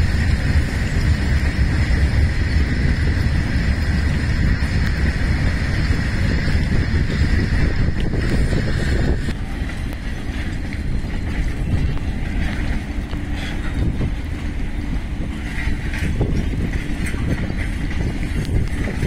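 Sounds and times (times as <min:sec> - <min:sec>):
freight train rumbling past: 0:00.0 - 0:19.0
train wheels clicking: 0:00.0 - 0:19.0.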